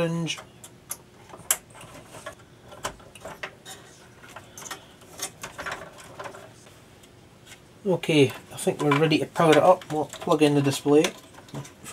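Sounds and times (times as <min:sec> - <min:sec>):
wire connectors clicking onto pins: 0:08.3 - 0:11.8.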